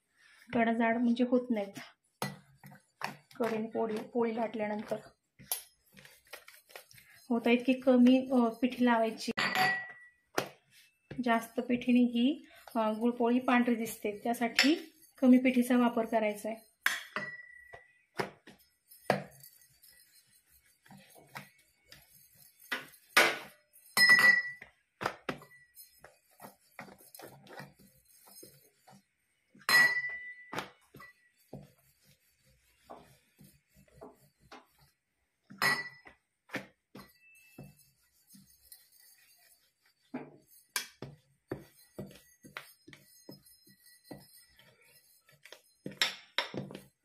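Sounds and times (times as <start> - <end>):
soft rolling and rubbing: 0.0 - 47.0
rolling pin clinking on steel plate: 7.6 - 10.2, 12.7 - 15.6, 16.6 - 18.0, 19.0 - 26.0, 29.6 - 31.3, 35.5 - 36.2, 40.6 - 47.0.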